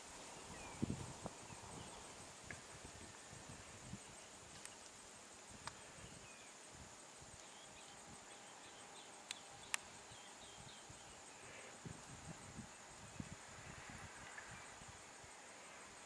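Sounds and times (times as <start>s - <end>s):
high insect drone: 0.0s - 16.0s
faint bird chirps: 7.3s - 13.4s.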